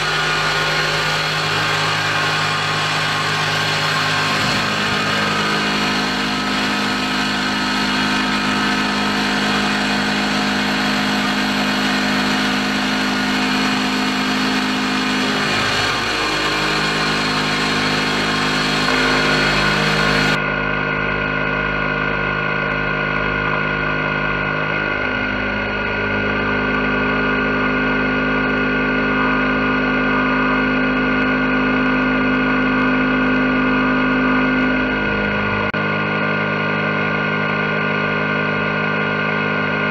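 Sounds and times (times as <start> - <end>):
milling spindle whine: 0.0 - 20.4
mist coolant hissing: 0.0 - 20.4.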